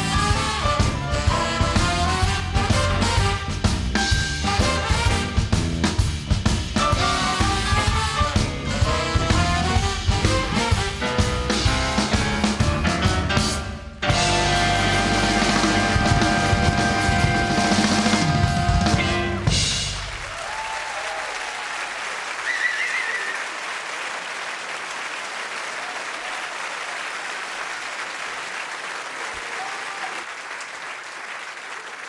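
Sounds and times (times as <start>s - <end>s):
blues band playing: 0.0s - 20.4s
audience applauding: 19.9s - 32.0s.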